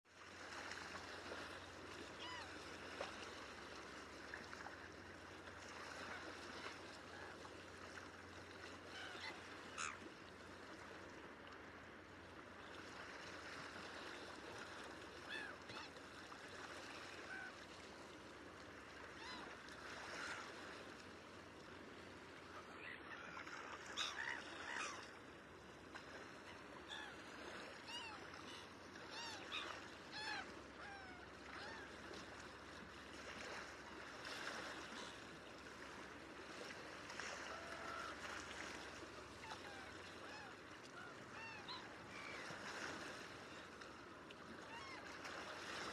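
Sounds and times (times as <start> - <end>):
water noise: 0.1 - 45.9
gulls calling: 2.0 - 2.7, 8.6 - 10.2, 15.1 - 16.1, 22.4 - 25.3, 26.2 - 32.1, 37.3 - 42.7, 44.6 - 45.1.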